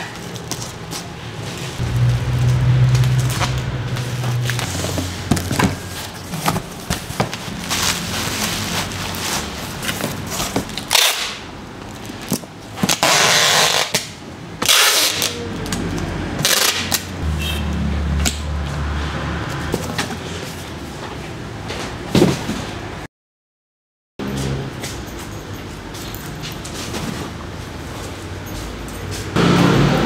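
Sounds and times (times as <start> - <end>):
packing tape tearing screech: 10.8 - 11.4, 12.9 - 15.4, 16.4 - 17.0.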